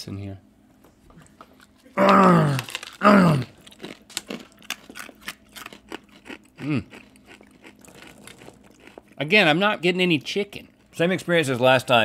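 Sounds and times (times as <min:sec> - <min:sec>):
dog chewing dry kibble: 0:03.6 - 0:09.2.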